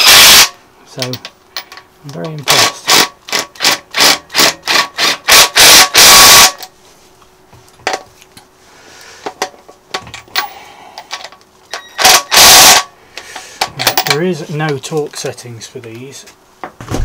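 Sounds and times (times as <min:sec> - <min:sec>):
cordless power tool whirring: 0:11.7 - 0:12.8.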